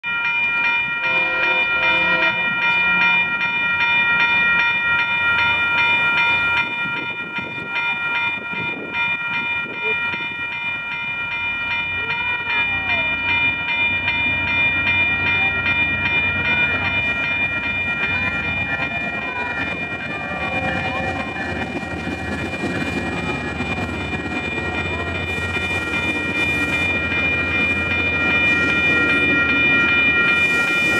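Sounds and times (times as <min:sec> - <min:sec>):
crossing warning bell ringing: 0:00.0 - 0:30.9
wheels clacking on rail: 0:00.1 - 0:30.9
train rumbling: 0:00.8 - 0:30.9
train horn: 0:01.0 - 0:03.2.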